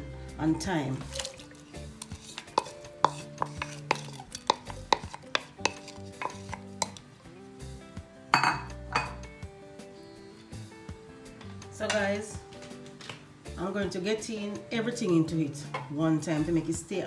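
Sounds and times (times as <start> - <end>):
soft background music: 0.0 - 17.0
utensil clinking on a dish: 1.1 - 7.0, 8.4 - 9.2
utensil scraping a dish: 2.0 - 7.0.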